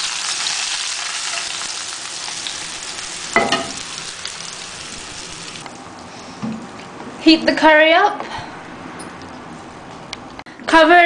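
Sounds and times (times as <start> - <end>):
oil sizzling: 0.0 - 6.1.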